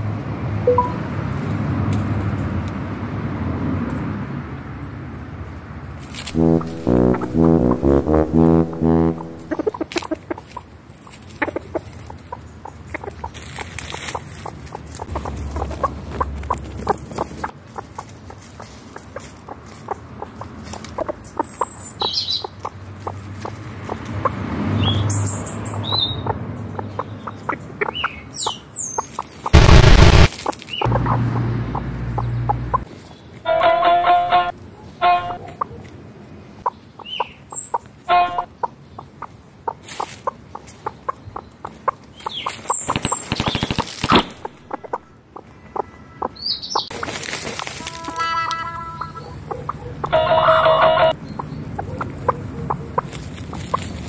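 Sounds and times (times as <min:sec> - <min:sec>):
chickens scratching in dirt: 0:09.6 - 0:21.8, 0:22.6 - 0:24.2, 0:30.3 - 0:30.9, 0:39.8 - 0:41.0, 0:41.6 - 0:44.6, 0:46.9 - 0:51.2, 0:52.0 - 0:54.0
hen flinging dirt with wings: 0:42.4 - 0:44.7, 0:46.9 - 0:48.3, 0:53.0 - 0:54.0.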